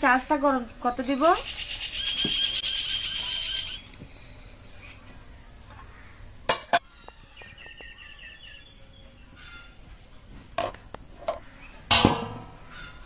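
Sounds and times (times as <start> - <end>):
bird chirping: 0.6 - 4.9, 6.8 - 11.9.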